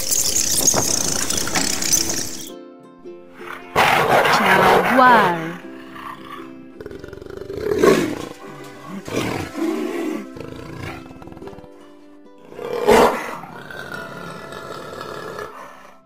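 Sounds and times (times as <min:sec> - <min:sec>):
background music: 0:00.0 - 0:16.0
jaguar roaring: 0:03.4 - 0:16.0.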